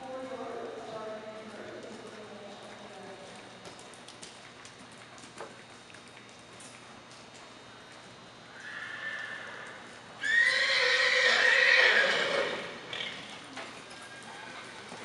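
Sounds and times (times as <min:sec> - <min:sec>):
horse whinnying: 0:08.6 - 0:13.2.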